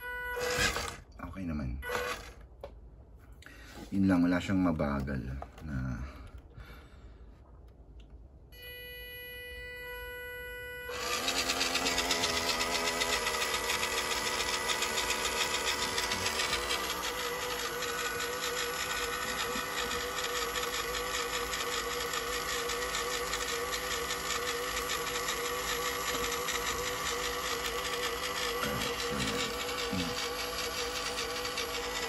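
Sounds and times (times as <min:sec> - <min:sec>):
toy car motor whining: 0:00.0 - 0:01.0, 0:01.8 - 0:02.4, 0:10.9 - 0:32.0.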